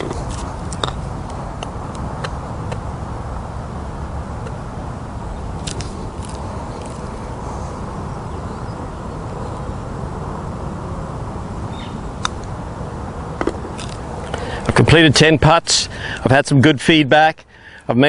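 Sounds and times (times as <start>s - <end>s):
putter striking golf ball clicks: 0.0s - 2.8s, 13.4s - 14.4s
low outdoor background rumble: 0.0s - 18.0s.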